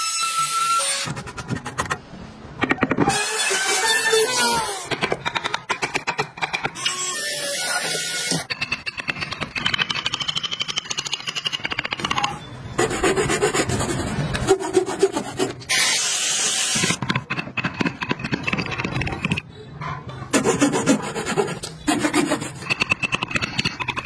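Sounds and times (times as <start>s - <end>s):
hand tools scraping wood: 20.3s - 24.0s.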